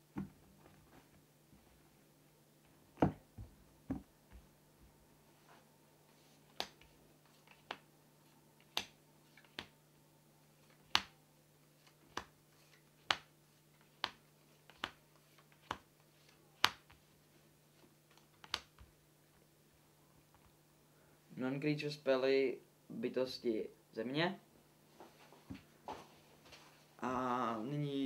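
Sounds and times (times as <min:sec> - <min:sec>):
faint steady hum: 0:00.0 - 0:28.0
playing cards clicking on table: 0:06.5 - 0:06.9, 0:08.6 - 0:09.7, 0:10.8 - 0:11.2, 0:12.1 - 0:12.3, 0:13.0 - 0:15.9, 0:16.6 - 0:17.0, 0:18.1 - 0:18.9.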